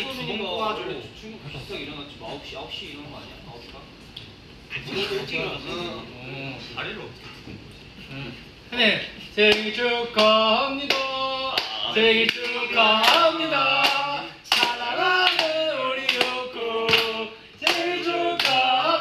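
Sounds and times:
young men singing together: 0:09.3 - 0:19.0
hand claps: 0:09.5 - 0:18.7.

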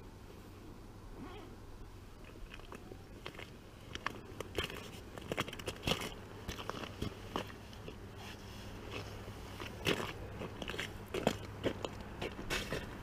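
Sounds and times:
faint low hum: 0:00.0 - 0:13.0
boots crunching on ice: 0:03.2 - 0:13.0.

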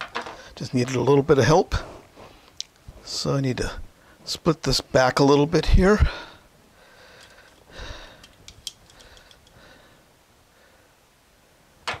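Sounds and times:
wire rustling: 0:07.2 - 0:09.6
sharp click and small ticks: 0:08.2 - 0:09.6.

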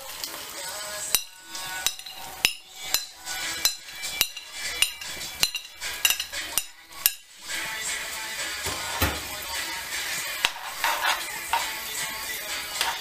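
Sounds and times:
utensil scraping frying pan: 0:00.0 - 0:13.0
utensil clinking on glass bowl: 0:01.1 - 0:07.3, 0:10.4 - 0:11.8, 0:12.8 - 0:13.0.

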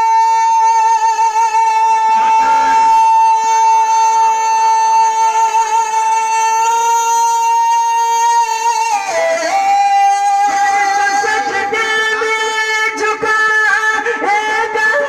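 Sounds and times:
man singing long note over loudspeaker: 0:00.0 - 0:15.0.

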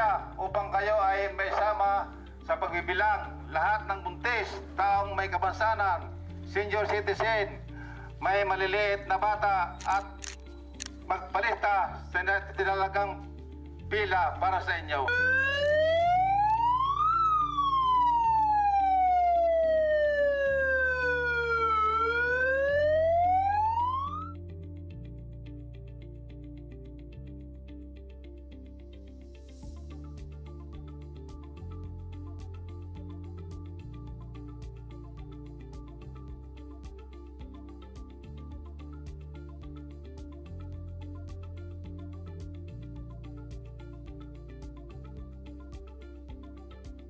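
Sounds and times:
bass notes: 0:00.0 - 0:28.8
background music: 0:00.0 - 0:47.0
siren wailing: 0:15.0 - 0:24.4.

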